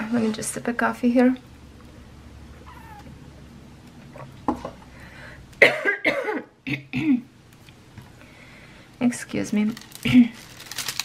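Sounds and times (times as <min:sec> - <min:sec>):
woman clearing her throat: 0:05.6 - 0:07.3
woman coughing: 0:05.6 - 0:07.3.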